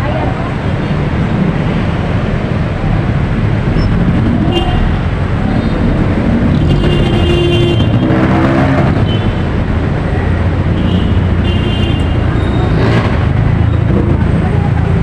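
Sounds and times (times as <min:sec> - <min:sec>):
road traffic: 0:00.0 - 0:15.0.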